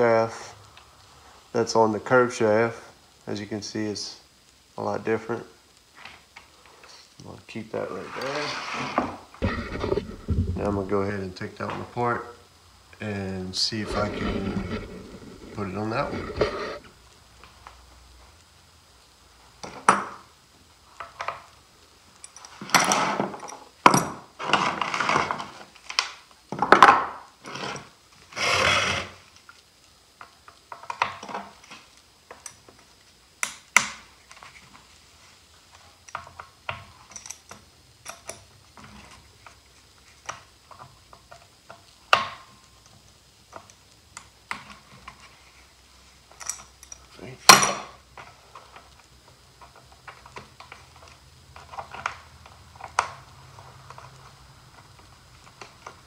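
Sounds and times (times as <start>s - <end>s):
tools clattering on workbench: 46.4s - 47.9s.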